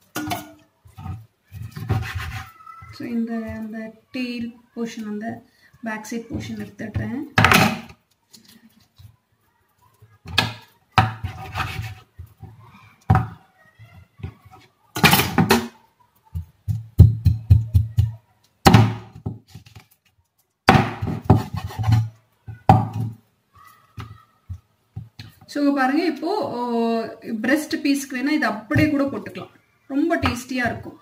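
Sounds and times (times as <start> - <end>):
cleaver chopping on wooden board: 20.7 - 21.5.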